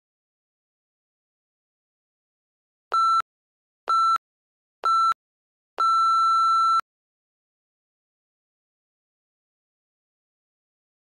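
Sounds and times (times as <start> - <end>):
timer beeps: 2.9 - 3.2, 3.9 - 4.2, 4.8 - 5.2, 5.8 - 6.8.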